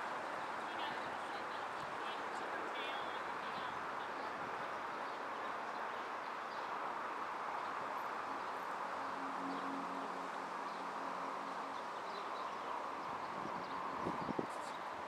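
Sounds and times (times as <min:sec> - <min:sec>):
outdoor background noise: 0:00.0 - 0:15.0.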